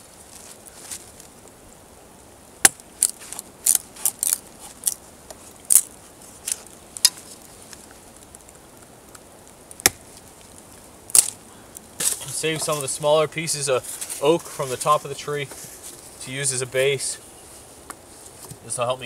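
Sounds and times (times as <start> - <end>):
knife splitting wooden sticks: 2.6 - 5.0, 11.1 - 11.4.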